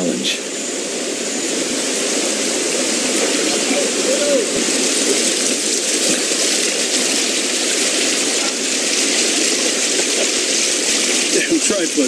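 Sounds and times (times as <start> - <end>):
river water rushing over boulders: 0.6 - 12.0.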